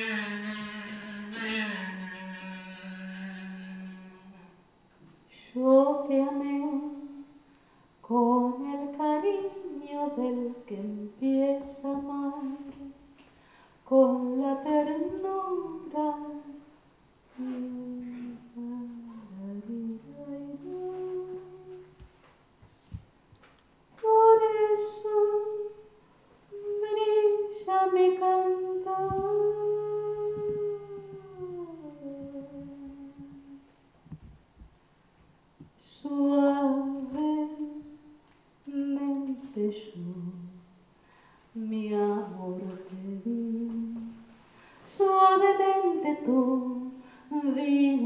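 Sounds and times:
low accompanying note: 0:00.0 - 0:04.6
woman singing into microphone: 0:08.0 - 0:13.0, 0:13.9 - 0:16.6, 0:17.3 - 0:22.0, 0:24.0 - 0:25.8, 0:26.5 - 0:33.7, 0:35.8 - 0:38.0, 0:41.6 - 0:44.2, 0:44.9 - 0:48.0.

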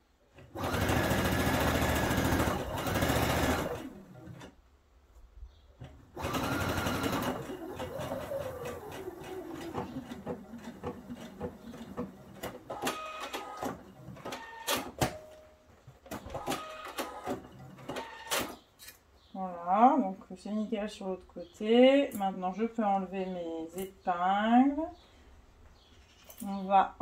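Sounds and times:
sewing machine stitching: 0:00.5 - 0:04.5, 0:06.2 - 0:15.0, 0:16.1 - 0:18.6.

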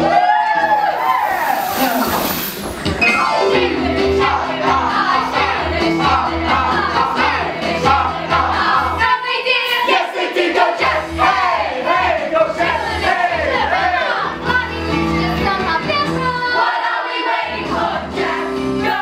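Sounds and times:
chorus singing: 0:00.0 - 0:19.0
instrumental accompaniment: 0:01.8 - 0:08.5.

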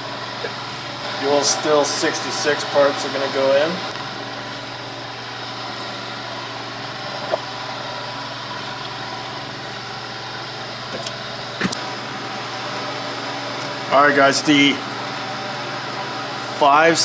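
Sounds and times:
appliance humming: 0:00.0 - 0:17.0.

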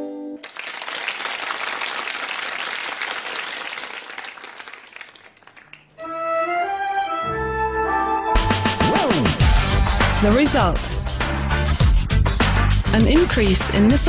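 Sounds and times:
music: 0:00.0 - 0:00.4, 0:06.0 - 0:14.0
audience applauding: 0:00.4 - 0:06.0.

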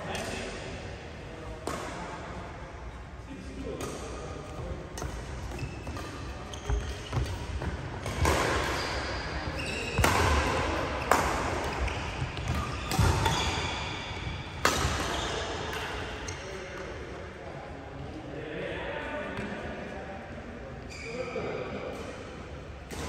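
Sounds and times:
rackets hitting shuttlecock: 0:03.7 - 0:16.3
shoes squeaking on court: 0:05.0 - 0:14.4.

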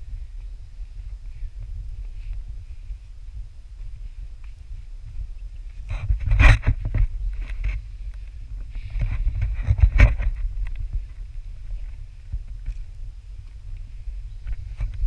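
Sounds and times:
wind buffeting microphone: 0:00.0 - 0:15.0
footsteps on rock: 0:03.8 - 0:15.0
handling noise of selfie stick: 0:05.5 - 0:15.0.

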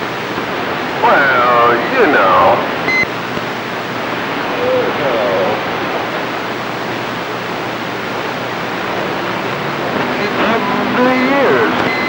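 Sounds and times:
radio static: 0:00.8 - 0:03.0, 0:08.7 - 0:12.0
weak distant voice on radio: 0:01.0 - 0:02.8, 0:09.9 - 0:11.9.

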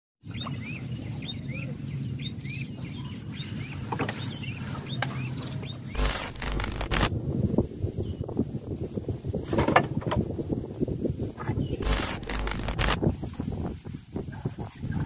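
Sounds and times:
buzzing digital static: 0:06.0 - 0:07.1, 0:11.8 - 0:13.0
sharp clicks: 0:06.0 - 0:07.1, 0:11.8 - 0:13.0
steady low hum: 0:06.0 - 0:07.1, 0:11.8 - 0:13.0.

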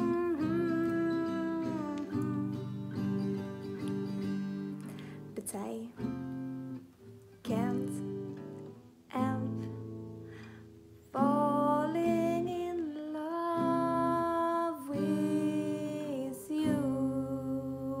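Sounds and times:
woman singing wordless melody: 0:00.0 - 0:03.6, 0:05.3 - 0:06.2, 0:07.4 - 0:10.2, 0:11.1 - 0:18.0
acoustic guitar strumming: 0:00.0 - 0:12.6.

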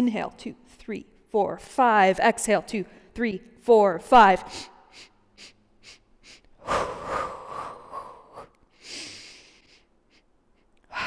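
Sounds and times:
woman breathing out: 0:06.3 - 0:09.8.

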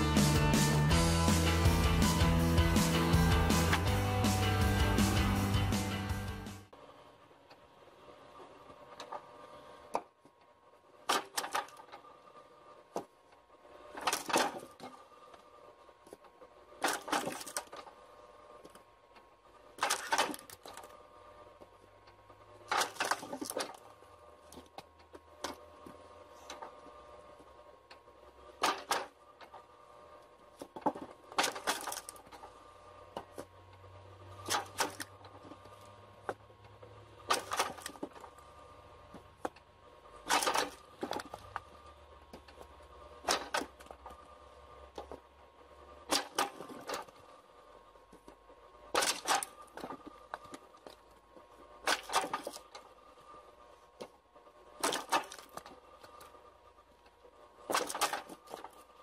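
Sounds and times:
steady mechanical hum: 0:00.0 - 0:59.0
machinery clattering: 0:37.2 - 0:45.3.

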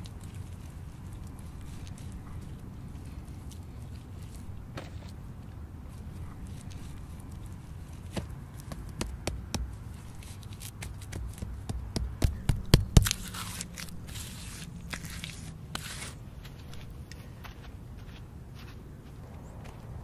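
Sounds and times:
hands smearing wet mud: 0:05.9 - 0:16.2
knocks and taps on mud bricks: 0:08.2 - 0:09.8, 0:10.8 - 0:13.2.

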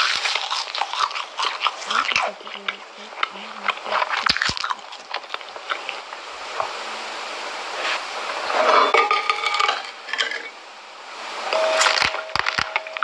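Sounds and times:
scraping on china plate: 0:08.5 - 0:10.6.

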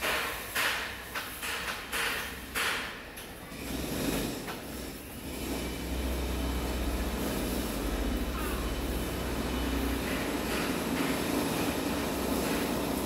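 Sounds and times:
hose spraying water on paving: 0:11.2 - 0:13.0.

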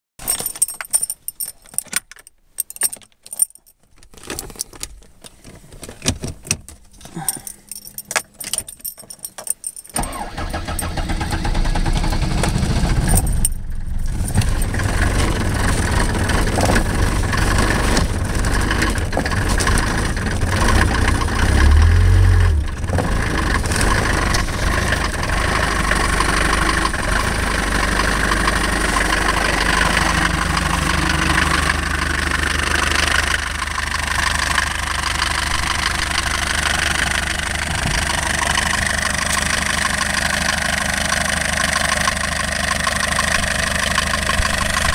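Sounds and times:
diesel engine starting and idling: 0:09.9 - 0:44.9.

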